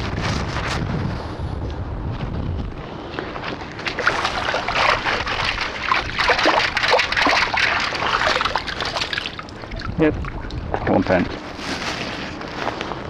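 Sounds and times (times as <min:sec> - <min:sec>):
water sloshing and splashing: 0:03.3 - 0:12.5
water trickling through scoop: 0:03.8 - 0:11.2.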